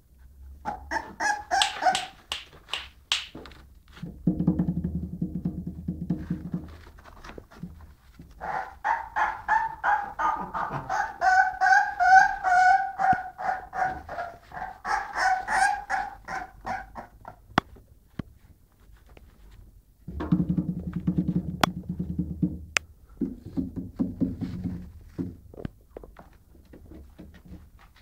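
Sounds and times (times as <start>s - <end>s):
puppy yelping: 0.6s - 2.4s, 8.4s - 17.6s.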